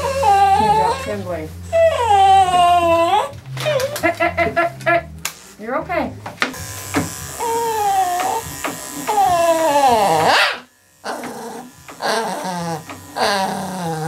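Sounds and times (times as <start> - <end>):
small dog whining: 0.0 - 4.0, 7.4 - 8.4, 9.1 - 14.0
electric clippers buzzing: 0.0 - 5.5, 6.2 - 14.0.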